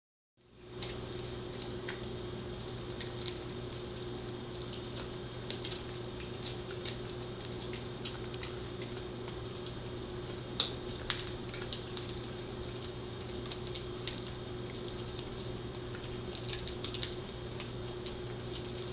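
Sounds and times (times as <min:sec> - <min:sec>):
dog chewing with crunches: 0:00.4 - 0:18.9
steady low hum: 0:00.4 - 0:18.9
louder cracks of chew: 0:00.7 - 0:18.9.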